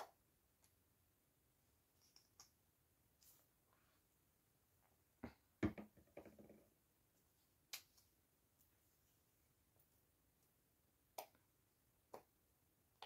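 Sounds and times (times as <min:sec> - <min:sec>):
plastic bottles knocking on table: 0:05.6 - 0:06.6.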